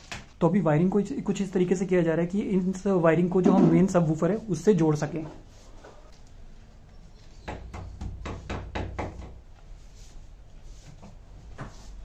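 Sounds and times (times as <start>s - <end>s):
sharp knocks against wall: 7.5s - 9.4s.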